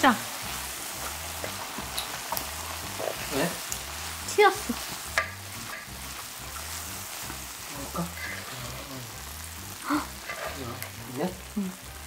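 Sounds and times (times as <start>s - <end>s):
risotto sizzling in pan: 0.0s - 12.0s
spatula stirring in pan: 10.1s - 10.6s.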